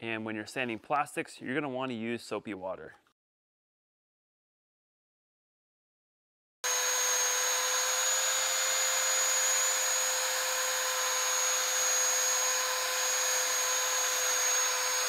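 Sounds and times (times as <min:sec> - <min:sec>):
drill motor whine with whistle: 0:06.6 - 0:15.0.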